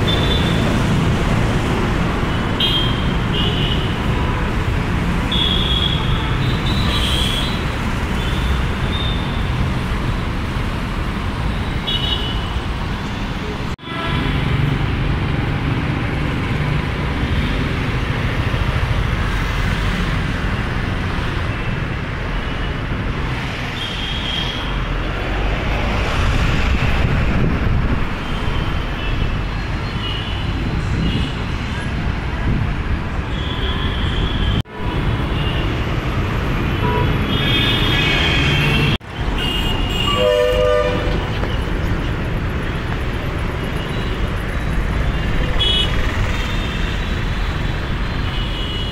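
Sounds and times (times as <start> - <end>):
road traffic: 0.0 - 48.9
vehicle horns honking: 33.3 - 34.6, 36.7 - 41.2, 45.6 - 46.0.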